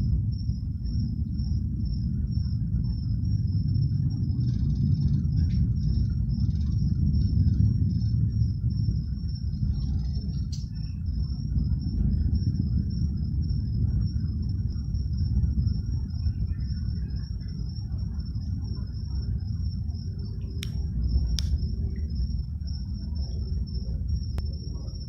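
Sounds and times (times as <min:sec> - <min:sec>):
cricket trill: 0:00.0 - 0:25.0
distant rocket engines rumbling: 0:00.0 - 0:25.0
sharp clicks: 0:20.6 - 0:21.6.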